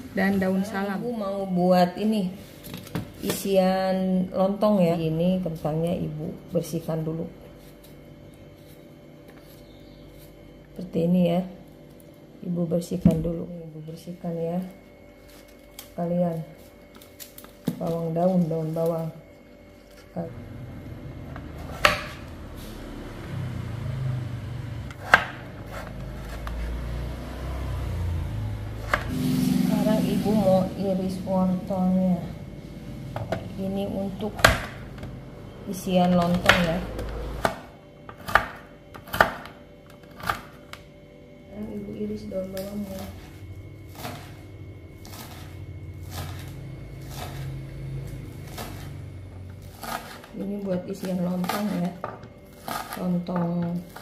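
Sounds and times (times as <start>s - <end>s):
low steady hum: 0.0s - 54.0s
knife cutting potato on board: 24.9s - 26.7s.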